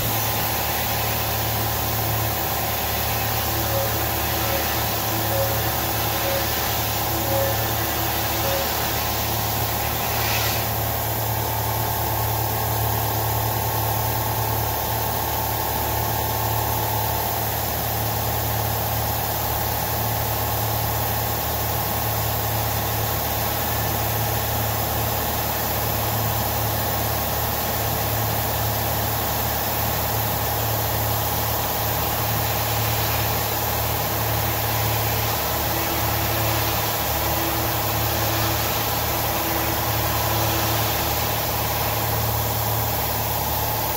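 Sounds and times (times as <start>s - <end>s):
coolant spraying: 0.0s - 18.6s, 29.2s - 43.9s
milling machine cutting metal: 0.0s - 18.6s, 28.0s - 43.9s.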